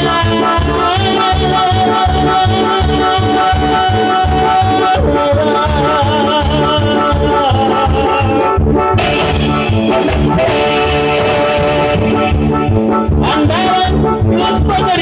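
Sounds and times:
brass band music: 0:00.0 - 0:15.0
person singing: 0:00.0 - 0:15.0.

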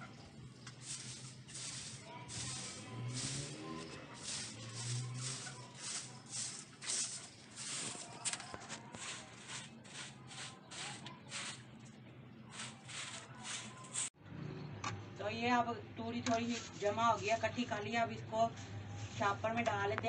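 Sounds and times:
broom sweeping straw: 0:00.6 - 0:11.7, 0:12.5 - 0:14.2, 0:16.5 - 0:17.4.

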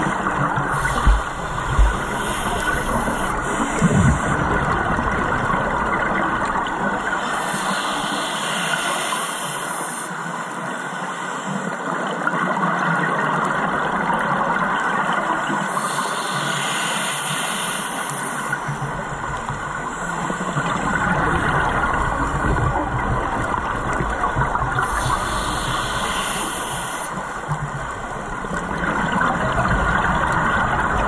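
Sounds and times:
diver's regulator bubbling: 0:00.0 - 0:07.8, 0:18.5 - 0:31.0
steady underwater hiss: 0:00.0 - 0:31.0.

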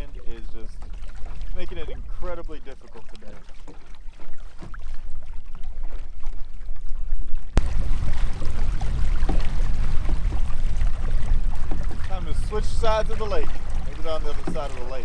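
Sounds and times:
choppy water slapping boat: 0:00.0 - 0:15.0
wind rumbling on microphone: 0:04.3 - 0:15.0.

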